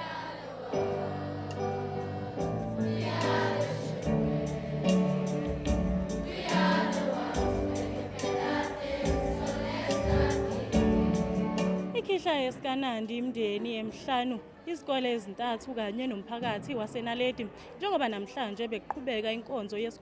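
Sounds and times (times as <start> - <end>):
choir singing in harmony: 0.0 - 12.0.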